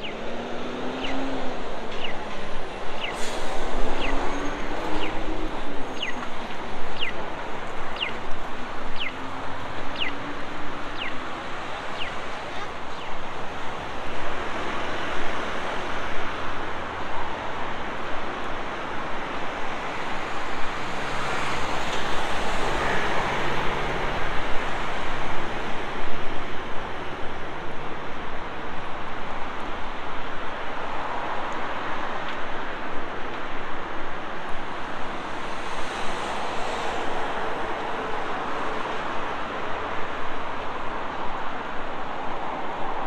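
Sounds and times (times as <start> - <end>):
road traffic noise: 0.0 - 43.0.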